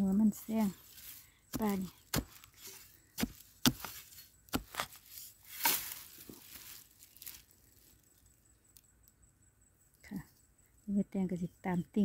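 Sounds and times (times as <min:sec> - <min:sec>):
digging tool scraping soil: 0:00.4 - 0:07.5.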